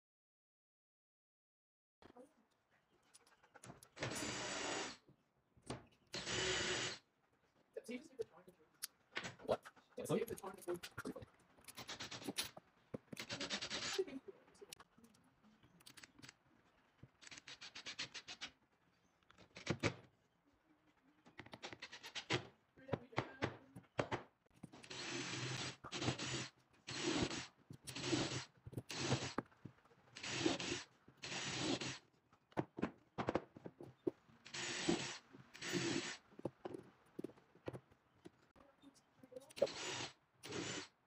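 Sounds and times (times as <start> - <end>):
cordless drill boring wood: 4.0 - 5.0, 6.2 - 7.0, 13.2 - 14.0, 24.8 - 29.4, 30.2 - 32.0, 34.5 - 36.3, 39.6 - 41.0
cordless driver driving screw: 4.0 - 5.0, 6.2 - 7.0, 11.7 - 14.0, 24.8 - 29.5, 30.2 - 32.0, 34.5 - 36.6, 39.5 - 41.0.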